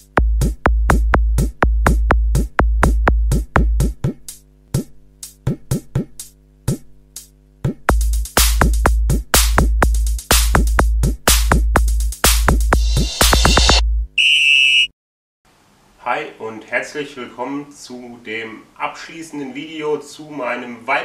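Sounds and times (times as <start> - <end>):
electronic music with drum beat: 0.0 - 13.8
snare and cymbal hits: 8.1 - 8.8, 12.2 - 13.8.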